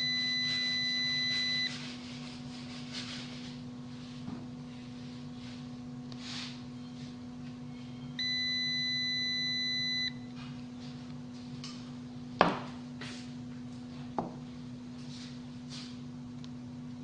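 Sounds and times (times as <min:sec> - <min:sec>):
multimeter continuity beep: 0:00.0 - 0:01.8, 0:08.1 - 0:10.2.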